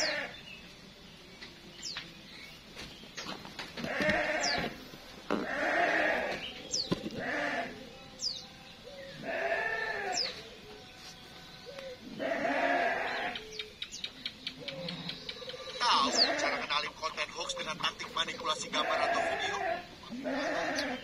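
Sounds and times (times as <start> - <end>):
small birds chirping: 0.0 - 21.0
goat bleating: 3.8 - 6.4, 7.2 - 7.8, 9.2 - 10.2, 12.2 - 13.4, 18.7 - 21.0.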